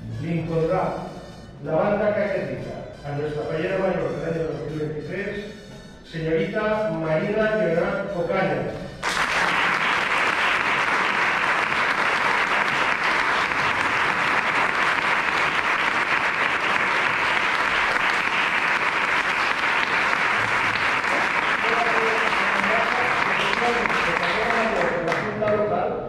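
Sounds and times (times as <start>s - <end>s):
audience applauding: 9.0s - 25.6s.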